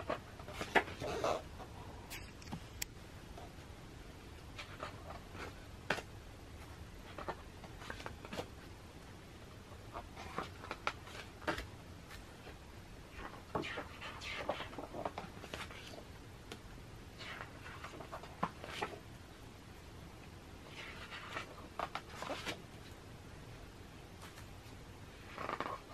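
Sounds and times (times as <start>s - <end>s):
book pages rustling: 0.0s - 1.5s, 4.5s - 8.7s, 9.7s - 16.6s, 17.2s - 19.0s, 20.7s - 23.0s, 24.2s - 25.9s.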